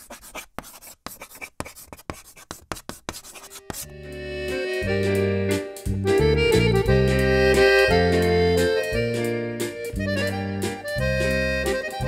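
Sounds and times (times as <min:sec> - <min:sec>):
chalk scratching on blackboard: 0:00.0 - 0:03.9
music with held chords: 0:03.8 - 0:12.0.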